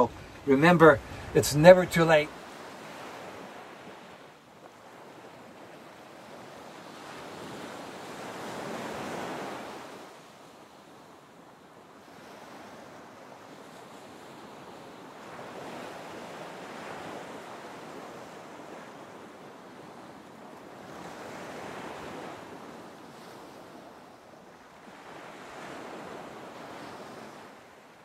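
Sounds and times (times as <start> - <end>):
ocean waves washing: 0.0 - 28.0.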